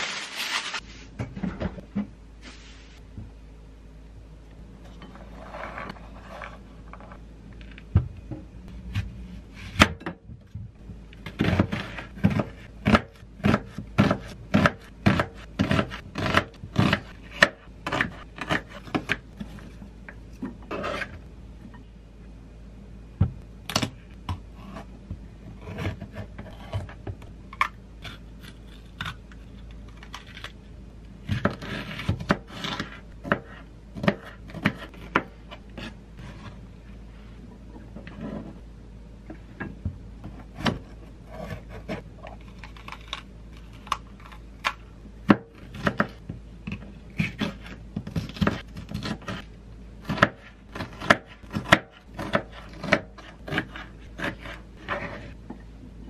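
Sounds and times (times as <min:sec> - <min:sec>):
knife scraping board: 0:05.0 - 0:07.0, 0:20.7 - 0:21.3, 0:31.3 - 0:36.6, 0:38.0 - 0:38.6, 0:40.3 - 0:42.1, 0:47.2 - 0:55.4
knife chopping on plastic board: 0:50.0 - 0:55.2.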